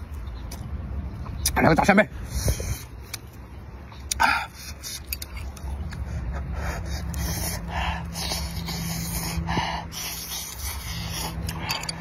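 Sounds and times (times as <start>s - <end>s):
steady low hum: 0.0s - 12.0s
noisy breaths through nose: 2.2s - 3.1s, 6.0s - 12.0s
man chewing food: 2.5s - 12.0s.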